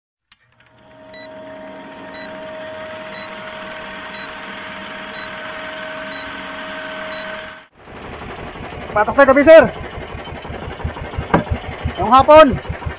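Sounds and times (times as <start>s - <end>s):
film projector clatter and hum: 0.3s - 12.9s
short high beeps: 1.1s - 1.4s, 2.1s - 2.4s, 3.0s - 7.7s.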